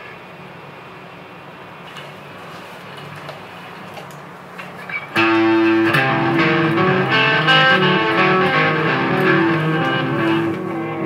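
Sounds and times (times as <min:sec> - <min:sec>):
electric guitar playing: 0:05.1 - 0:11.0.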